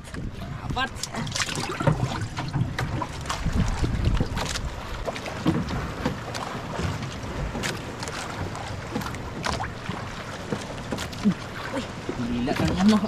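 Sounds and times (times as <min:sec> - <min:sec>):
wind on microphone: 0:00.0 - 0:04.8
water lapping against boat hull: 0:00.0 - 0:13.0.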